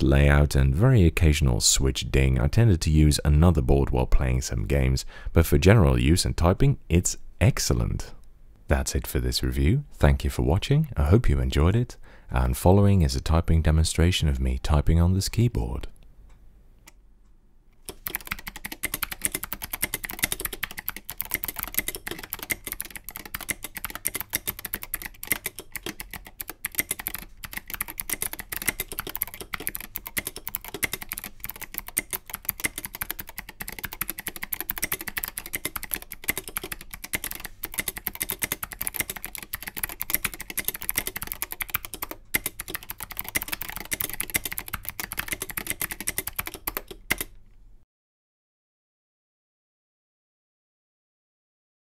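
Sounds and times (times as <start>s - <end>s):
clicky mechanical keyboard typing: 17.8s - 47.4s.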